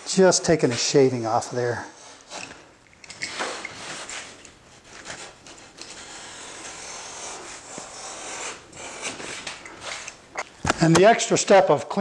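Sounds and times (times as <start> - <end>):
utility knife scraping drywall: 3.2 - 10.2.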